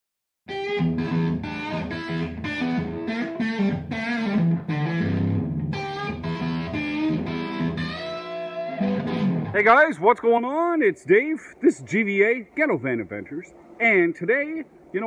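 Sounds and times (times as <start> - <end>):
electric guitar music: 0.5 - 9.7.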